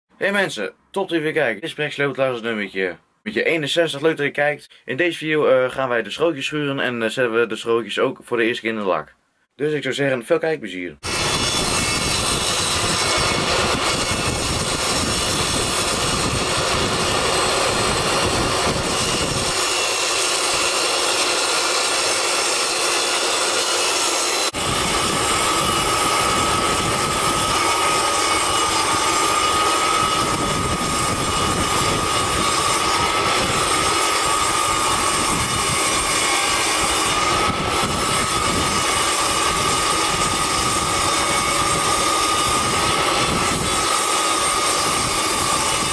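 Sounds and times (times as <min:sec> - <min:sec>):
steady high whine: 0:11.0 - 0:45.9
table saw ripping wood: 0:11.0 - 0:45.9.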